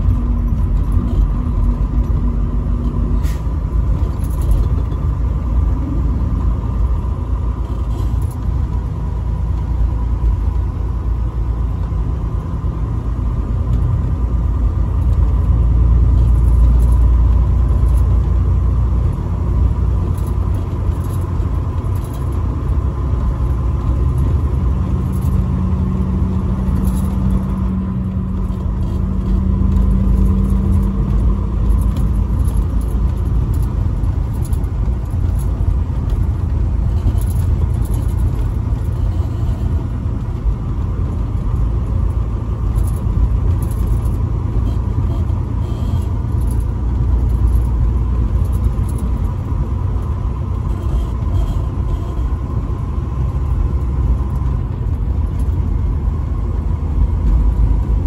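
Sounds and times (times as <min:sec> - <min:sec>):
truck engine and road rumble: 0:00.0 - 0:58.0.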